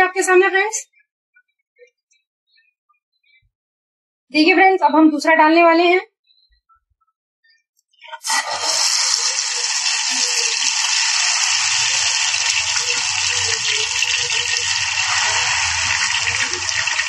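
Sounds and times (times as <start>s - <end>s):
batter frying with fizzing sizzle: 8.2s - 17.0s.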